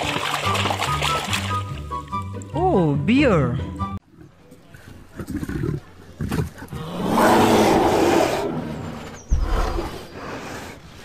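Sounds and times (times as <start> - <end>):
bear growling: 5.1 - 11.0.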